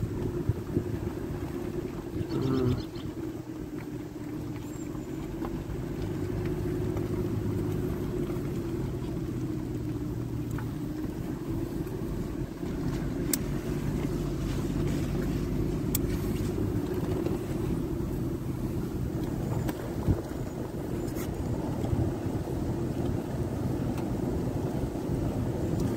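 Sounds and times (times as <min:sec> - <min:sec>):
vehicle engine and tyres humming: 0:00.0 - 0:25.9
wind on microphone: 0:16.2 - 0:25.9.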